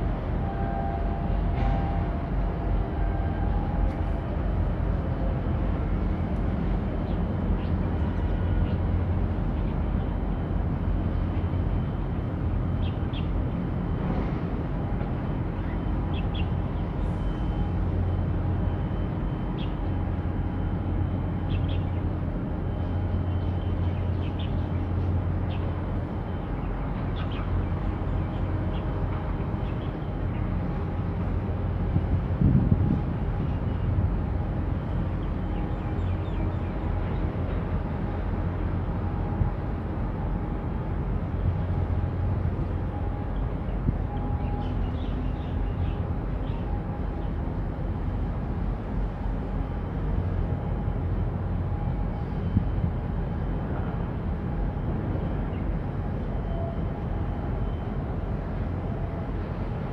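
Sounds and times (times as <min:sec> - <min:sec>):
low ship engine rumble: 0:00.0 - 0:59.9.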